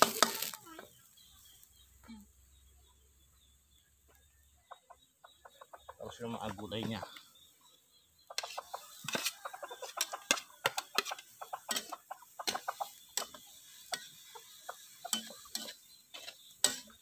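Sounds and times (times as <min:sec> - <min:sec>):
metal spatula scraping a wok: 0:00.0 - 0:00.6, 0:08.4 - 0:17.0.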